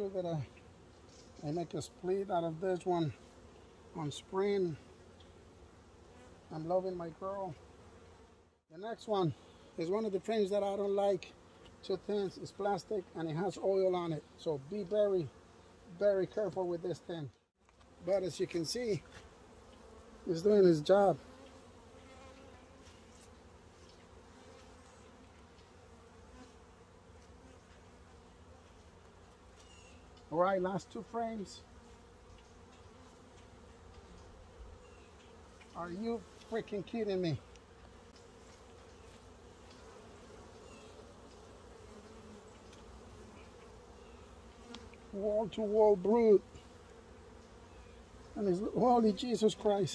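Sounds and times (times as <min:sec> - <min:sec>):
honeybees buzzing: 0:00.0 - 0:49.9
faint ticks: 0:37.5 - 0:39.0, 0:44.6 - 0:45.1.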